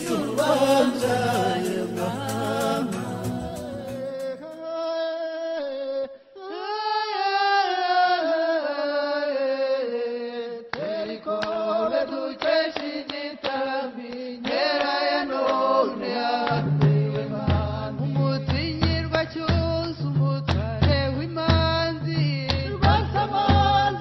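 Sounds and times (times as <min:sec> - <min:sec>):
rhythmic percussive clicks: 0:00.0 - 0:04.6, 0:16.4 - 0:17.9
chant-like singing voices: 0:00.0 - 0:21.0, 0:22.4 - 0:24.0.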